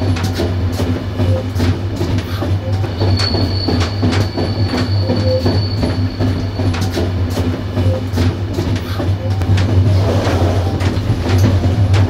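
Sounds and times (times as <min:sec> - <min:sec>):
low train rumble: 0:00.0 - 0:12.0
train wheels clickety-clack: 0:00.0 - 0:12.0
high-pitched wheel squeal: 0:02.7 - 0:07.0.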